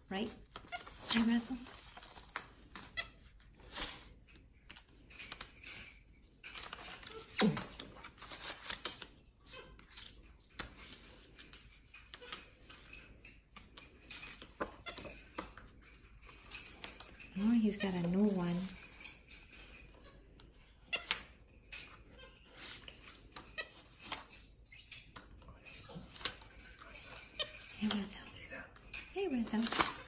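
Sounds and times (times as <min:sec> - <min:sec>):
paper rustling: 0:00.5 - 0:05.4, 0:06.6 - 0:11.6.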